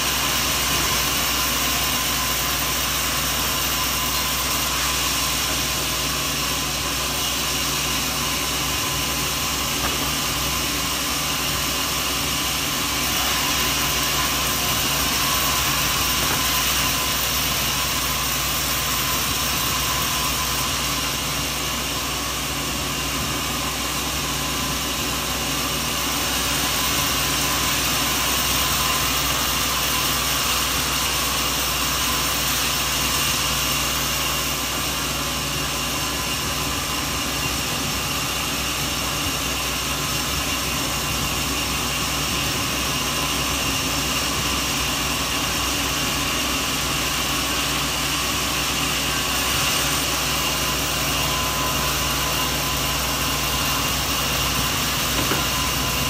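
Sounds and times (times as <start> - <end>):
sawmill machinery running: 0.0 - 56.0.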